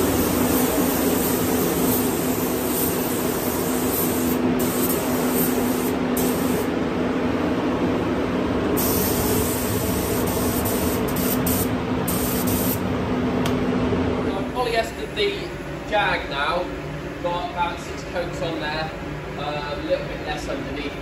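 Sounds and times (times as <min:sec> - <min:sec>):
spray gun hissing: 0:00.0 - 0:06.7, 0:08.8 - 0:12.8
air system hum: 0:00.0 - 0:21.0.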